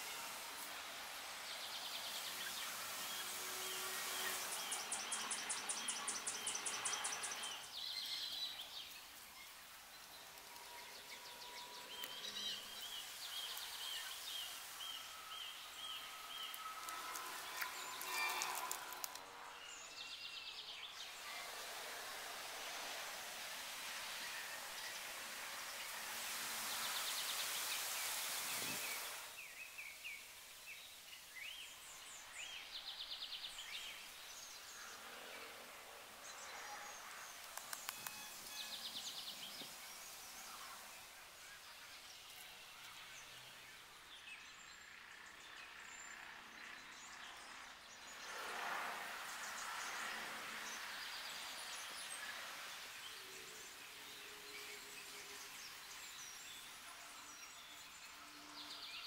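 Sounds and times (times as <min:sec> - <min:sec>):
birds chirping and trilling: 0:01.6 - 0:21.6
sharp clicks: 0:37.4 - 0:38.2.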